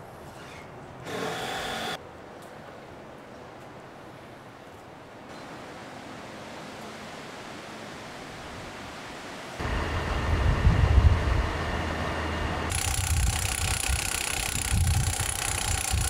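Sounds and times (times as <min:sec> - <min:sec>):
high mechanical whine: 0:01.1 - 0:02.0, 0:09.6 - 0:16.0.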